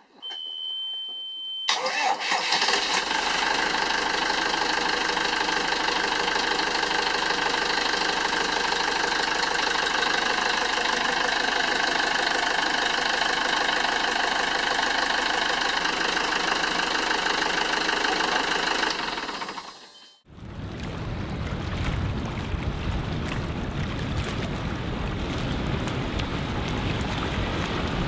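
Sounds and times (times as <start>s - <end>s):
diesel engine idling: 1.7s - 20.7s.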